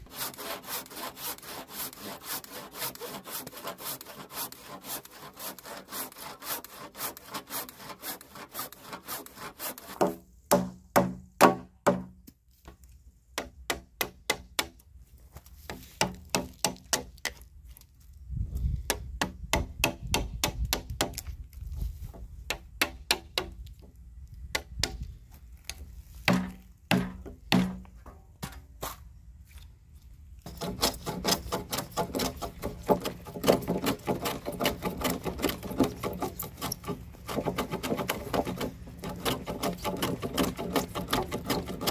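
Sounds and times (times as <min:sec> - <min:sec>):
hand plane shaving wood: 0:00.0 - 0:10.2, 0:30.5 - 0:41.9
handsaw cutting timber: 0:00.0 - 0:11.1, 0:30.4 - 0:41.9.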